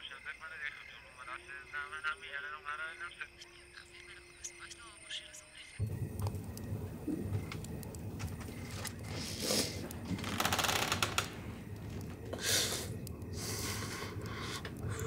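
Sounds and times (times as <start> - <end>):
man breathing heavily: 9.0 - 10.0, 12.3 - 15.0.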